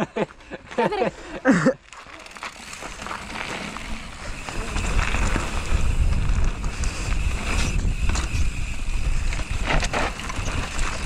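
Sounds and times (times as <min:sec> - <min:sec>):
bike clicks and rattles: 0:00.0 - 0:11.0
bike tyres on dirt: 0:00.0 - 0:11.0
wind buffeting microphone: 0:04.2 - 0:11.0.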